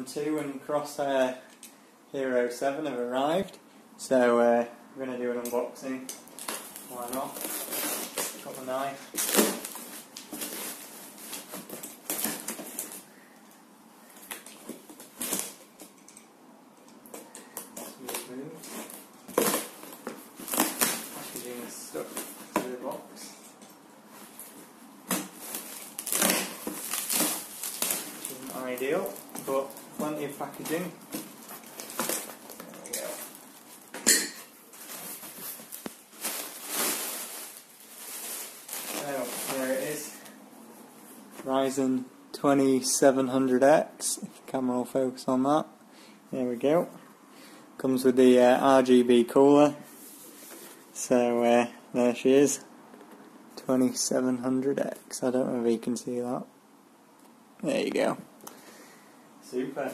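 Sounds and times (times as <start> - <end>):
plastic air pillows rustling: 5.8 - 13.3, 17.1 - 41.8.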